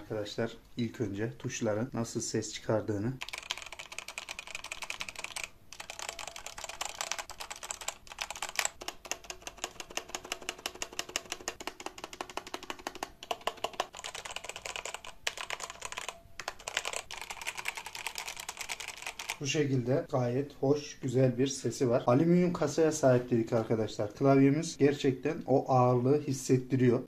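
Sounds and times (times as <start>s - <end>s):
mechanical keyboard typing: 3.2s - 19.4s.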